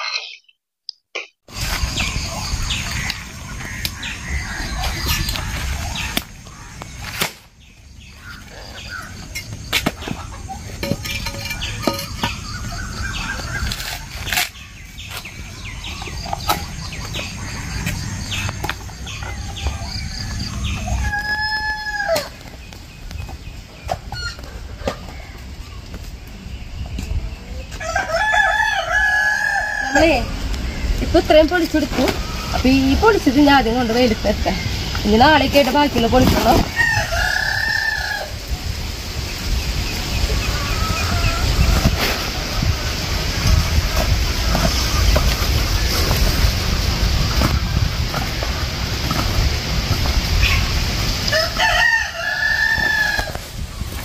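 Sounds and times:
rooster crowing: 20.7s - 22.4s, 27.8s - 30.3s, 36.7s - 38.4s, 40.4s - 42.1s, 51.2s - 53.4s.

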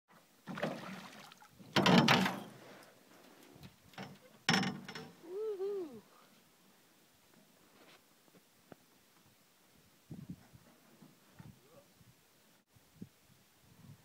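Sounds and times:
knocks and clatter in metal boat: 1.7s - 2.6s, 3.9s - 5.1s.

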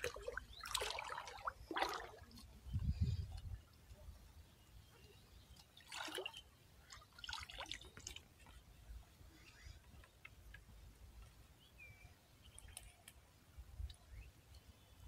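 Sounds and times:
shallow water splashing: 0.0s - 2.6s, 5.7s - 8.6s.

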